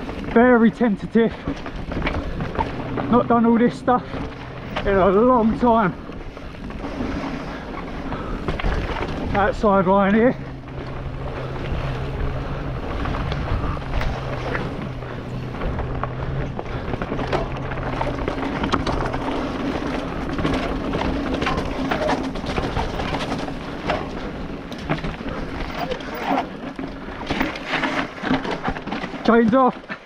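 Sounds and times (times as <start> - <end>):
bike rattling knocks: 0.0 - 30.0
tyres rushing over dirt: 0.0 - 30.0
wind over microphone: 10.4 - 20.8.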